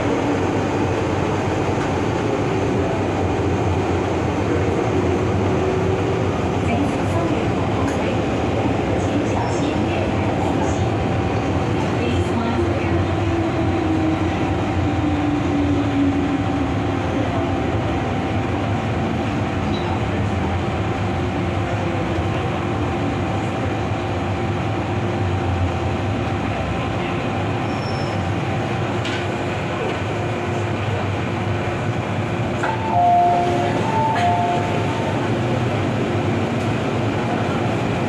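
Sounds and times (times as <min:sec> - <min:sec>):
metro train wheels rumbling: 0:00.0 - 0:38.0
train motor tone: 0:32.6 - 0:35.3.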